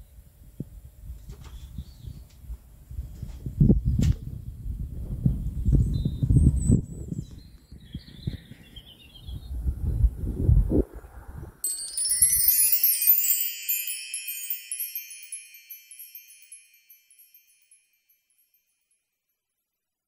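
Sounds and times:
cascade of high chimes: 11.6 - 19.0.

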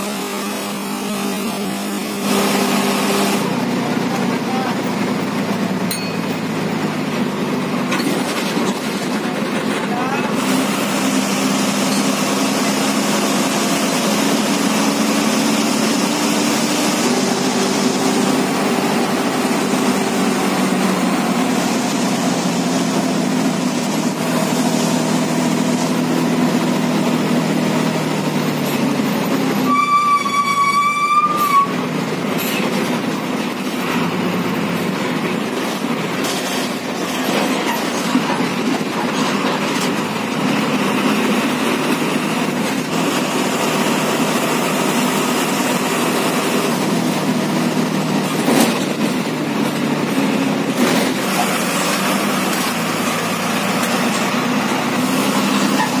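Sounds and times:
bus diesel engine droning: 0.0 - 56.0
road and cabin rattle: 3.4 - 56.0
bus horn blast: 29.6 - 31.9.

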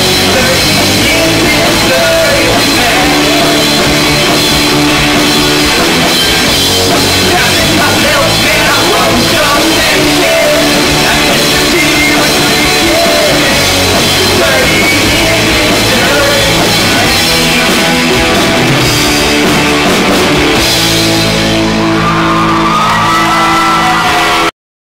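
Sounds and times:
person singing: 0.0 - 4.6, 6.8 - 18.1
bass guitar: 0.0 - 24.5
drum kit: 0.0 - 24.5
electric guitars: 0.0 - 24.5.

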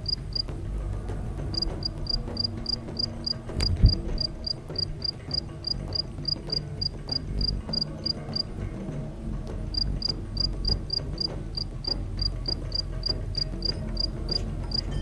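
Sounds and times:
cricket chirping: 1.6 - 8.4, 9.8 - 11.0, 11.6 - 14.9.

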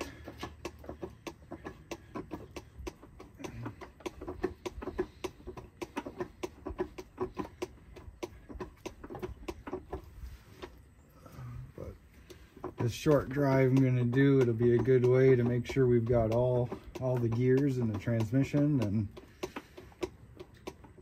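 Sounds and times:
hand pump clicking: 0.0 - 10.8, 12.0 - 21.0.

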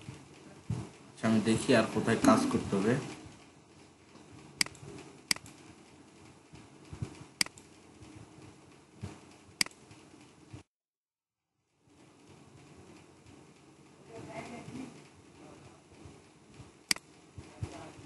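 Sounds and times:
computer mouse clicking: 4.6 - 5.6, 6.8 - 8.2, 9.6 - 10.0.

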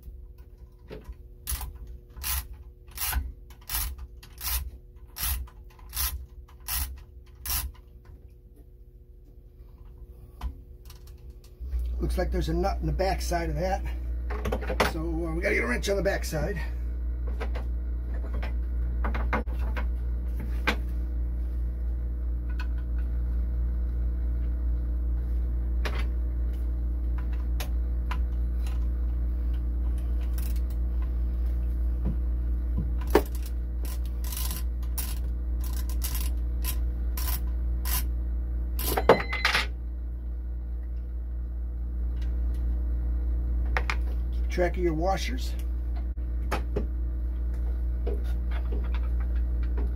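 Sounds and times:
low hum: 0.0 - 49.9
wrench clicking on metal: 5.2 - 7.8.

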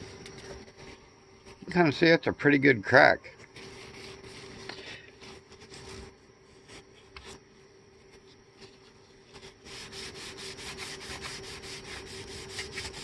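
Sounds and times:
faint steady hum: 0.0 - 13.0
cloth scrubbing plastic: 3.5 - 7.4, 8.0 - 13.0.

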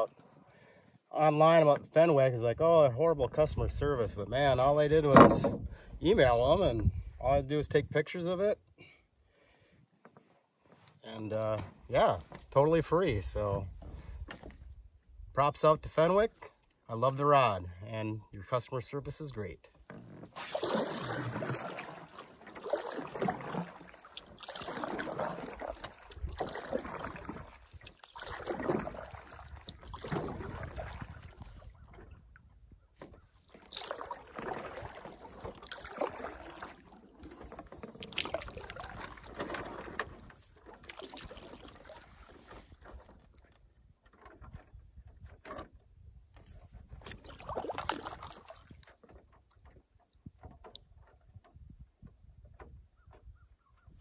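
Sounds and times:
water sloshing against canoe: 3.4 - 7.2, 15.9 - 54.0.

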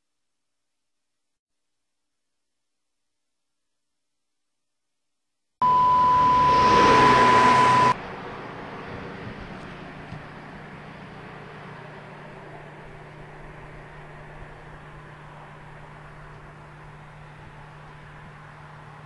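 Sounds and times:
radio alert beep: 5.6 - 8.0.

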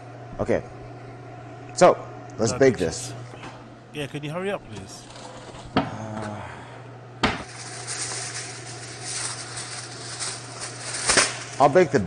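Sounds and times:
aluminium foil crinkling: 7.4 - 11.8.

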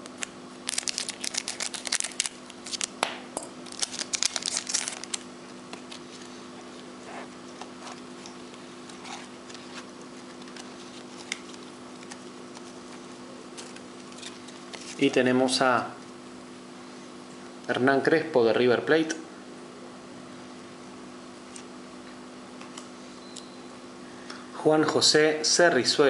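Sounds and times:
steady low hum: 0.0 - 26.0
wrapper crinkling: 0.6 - 3.0, 3.6 - 6.3, 8.9 - 13.0.

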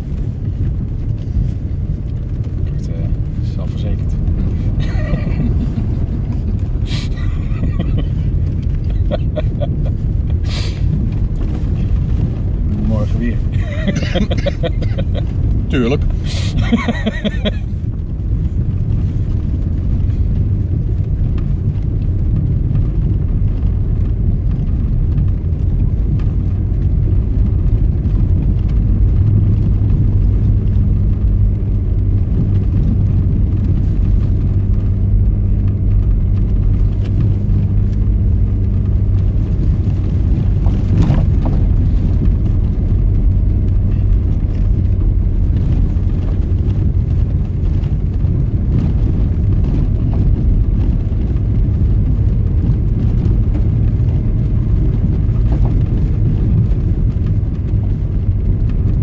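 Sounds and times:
car engine hum: 0.0 - 59.0
road rumble: 0.0 - 59.0.

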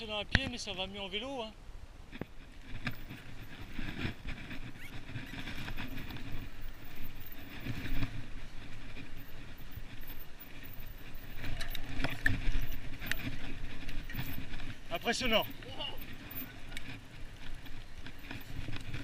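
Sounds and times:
bike rattling over bumps: 2.0 - 19.0
bike tyres rumbling on dirt: 2.1 - 19.0.

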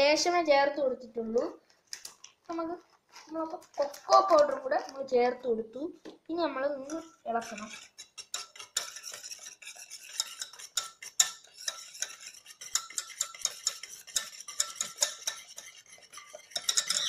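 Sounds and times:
whisk clinking in steel bowl: 6.9 - 17.0.

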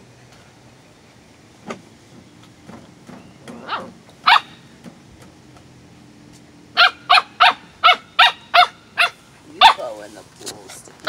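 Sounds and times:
dog barking: 3.6 - 4.5, 6.8 - 9.9.

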